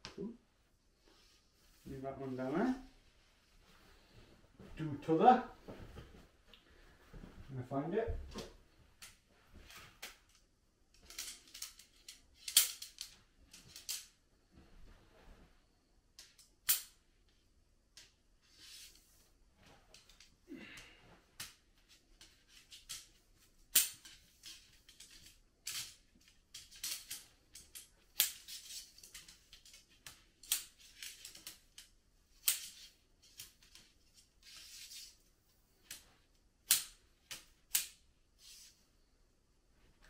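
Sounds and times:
tent pole sections clicking: 8.3s - 14.2s, 19.9s - 38.0s.

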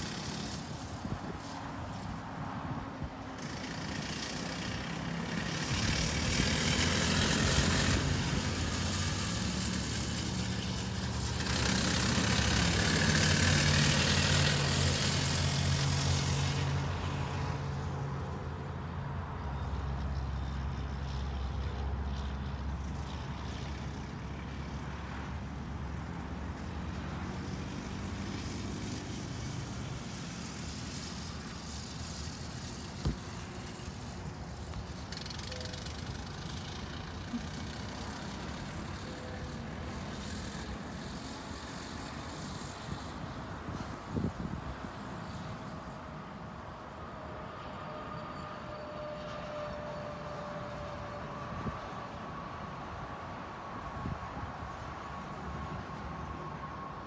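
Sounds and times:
go-kart engine running: 0.0s - 2.2s, 2.9s - 17.8s, 22.5s - 46.0s.

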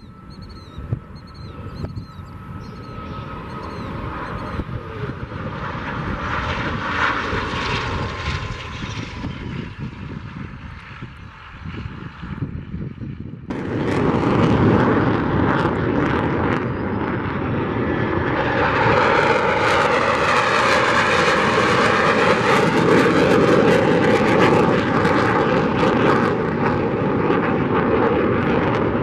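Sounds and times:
fighter jet engine roar: 0.0s - 29.0s.

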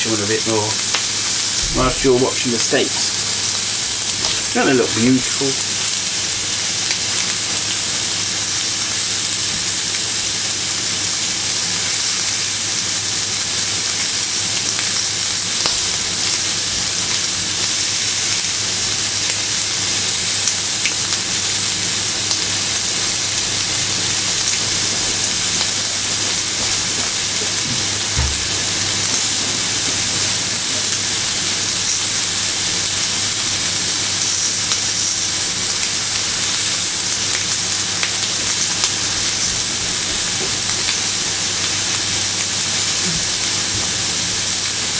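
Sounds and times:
steaks searing in butter: 0.0s - 44.9s
short low thump: 27.7s - 28.5s.

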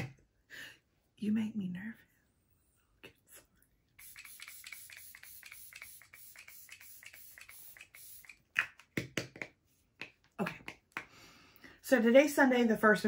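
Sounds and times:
spray bottle hissing: 4.0s - 8.6s
spray bottle clicks: 4.0s - 8.8s.

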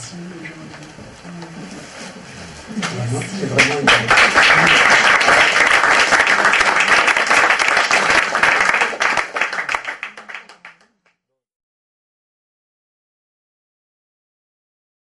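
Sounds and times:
audience applauding: 3.4s - 10.9s.

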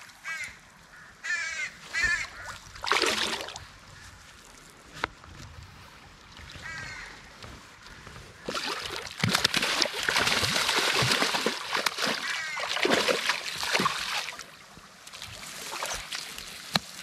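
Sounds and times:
fish thrashing and splashing in water: 2.0s - 3.6s, 8.4s - 17.0s
bird calling: 12.1s - 12.8s.

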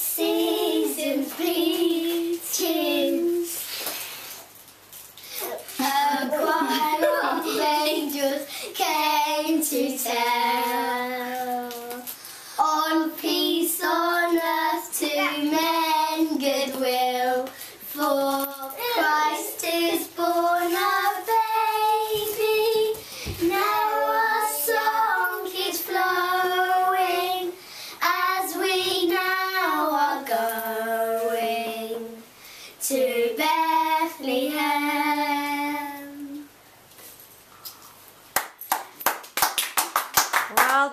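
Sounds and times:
children singing unaccompanied: 0.0s - 3.6s, 12.6s - 32.2s.

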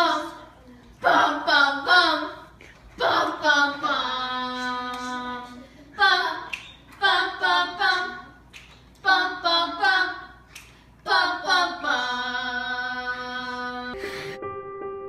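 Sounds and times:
person singing a cappella: 1.0s - 8.3s, 11.0s - 14.0s.

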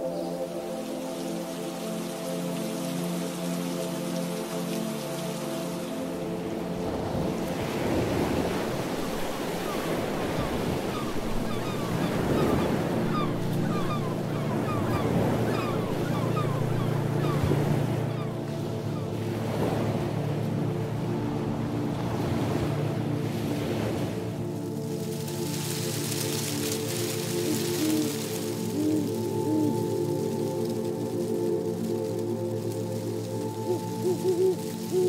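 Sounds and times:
ocean waves washing: 0.0s - 35.0s
low sustained hum: 11.1s - 35.0s.

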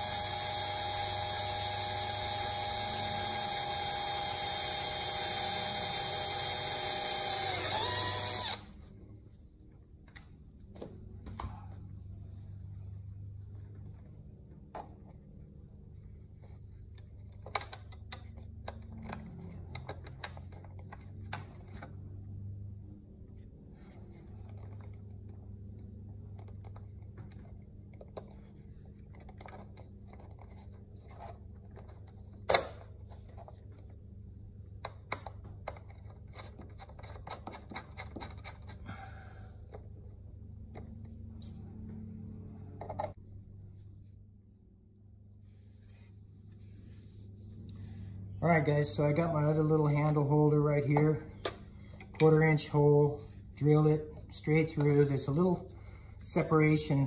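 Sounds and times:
steady low hum: 0.0s - 35.1s
hands clicking and scratching parts: 26.2s - 34.0s, 34.8s - 38.9s.

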